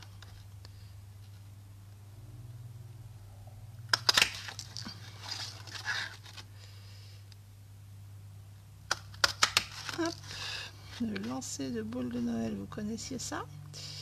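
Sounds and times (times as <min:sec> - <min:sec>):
card rustling and scraping: 0:00.0 - 0:01.5, 0:04.0 - 0:06.7, 0:09.0 - 0:11.6
low steady hum: 0:00.0 - 0:14.0.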